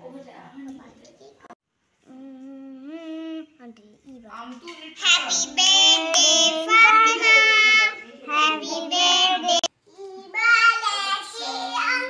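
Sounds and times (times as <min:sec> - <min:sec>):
child singing: 0:05.0 - 0:12.0.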